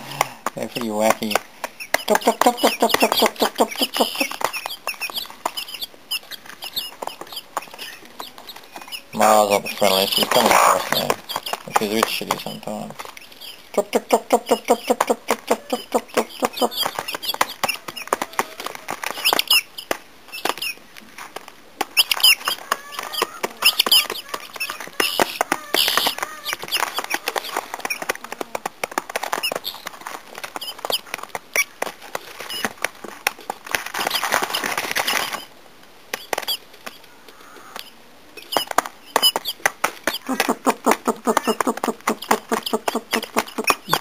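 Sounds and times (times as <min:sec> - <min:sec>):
beaks tapping on feed: 0:00.0 - 0:35.5, 0:36.1 - 0:44.0
rustling: 0:00.0 - 0:44.0
high squeaky cheeps: 0:22.0 - 0:27.5.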